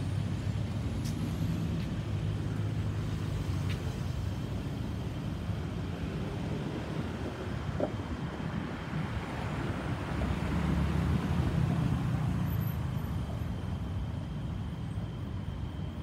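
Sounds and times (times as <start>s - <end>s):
distant jet engine rumble: 0.0s - 10.6s.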